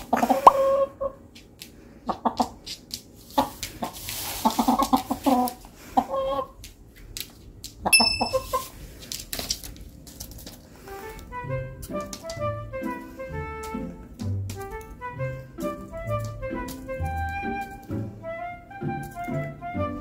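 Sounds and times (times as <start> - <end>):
chicken clucking: 0.0 - 1.3, 2.0 - 6.6, 7.8 - 8.8.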